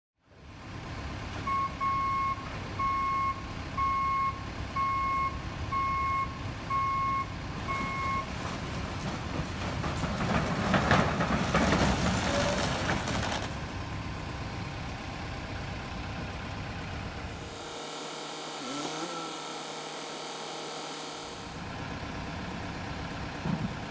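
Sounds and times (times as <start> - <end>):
truck engine running: 0.4 - 23.9
truck reversing alarm beeping: 1.4 - 8.4
roof trusses sliding rumble and clatter: 7.5 - 14.9.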